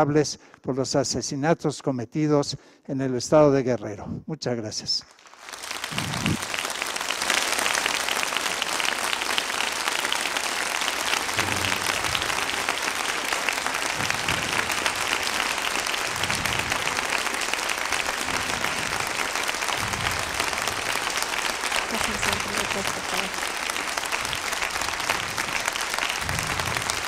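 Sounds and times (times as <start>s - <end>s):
audience applauding: 5.1s - 27.0s.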